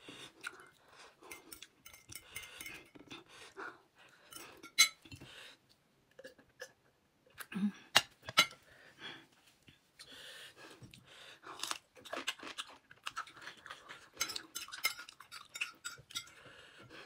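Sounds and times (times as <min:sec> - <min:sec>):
chewing noodles: 0:10.8 - 0:17.0.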